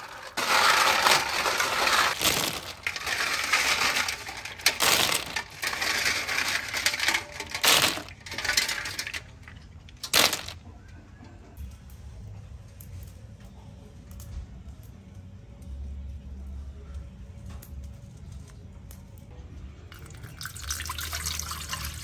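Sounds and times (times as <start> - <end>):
snail shells clattering: 0.0 - 10.6.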